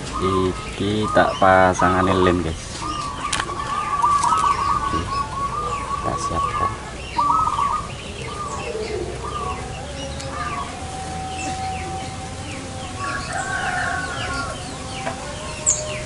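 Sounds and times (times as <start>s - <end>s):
small birds chirping: 0.0s - 16.0s
rooster crowing: 7.2s - 16.0s.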